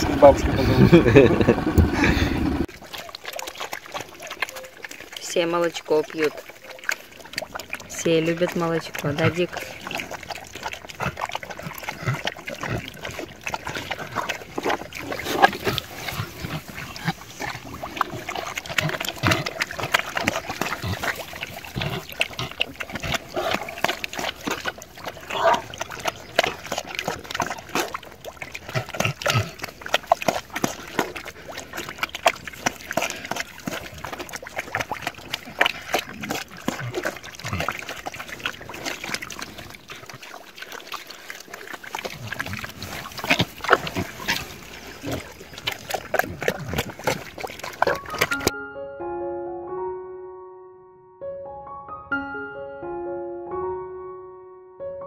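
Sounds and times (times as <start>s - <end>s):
animal grunts: 0.0s - 2.7s, 8.5s - 31.9s, 32.6s - 40.4s, 41.1s - 48.5s
animals lapping milk: 0.0s - 48.5s.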